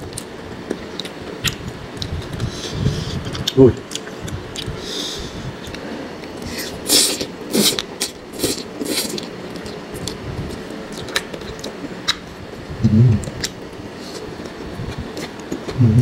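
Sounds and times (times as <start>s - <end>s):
chewing: 5.6s - 12.3s
low hum: 9.2s - 16.0s.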